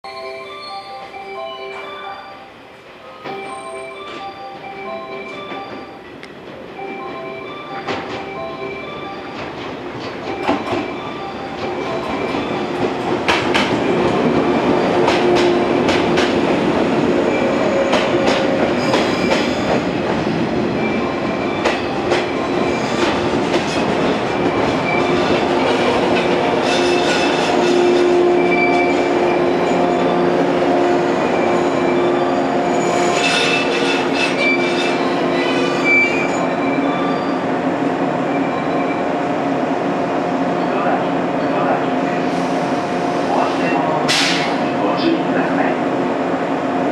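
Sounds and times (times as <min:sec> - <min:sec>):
train wheels clacking: 0:09.1 - 0:29.6, 0:44.1 - 0:44.7
train brakes squealing: 0:17.2 - 0:19.9, 0:26.6 - 0:37.6.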